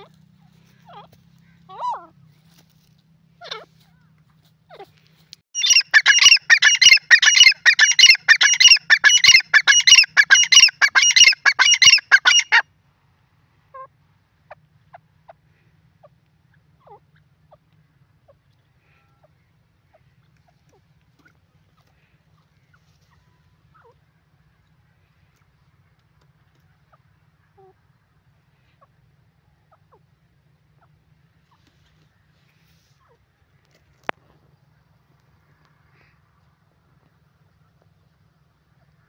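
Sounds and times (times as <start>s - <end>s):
francolin calling shrill notes: 5.6s - 12.6s.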